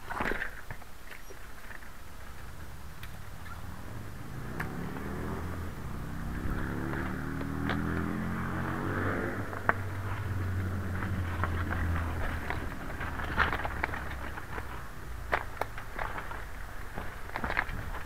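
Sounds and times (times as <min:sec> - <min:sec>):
tyres rolling on gravel: 0:00.0 - 0:18.0
sharp clicks: 0:04.5 - 0:04.8.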